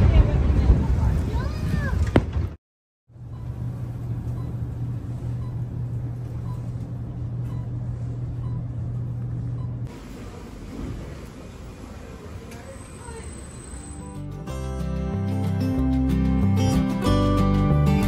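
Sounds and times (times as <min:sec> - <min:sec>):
elevator car humming: 0:03.1 - 0:14.5.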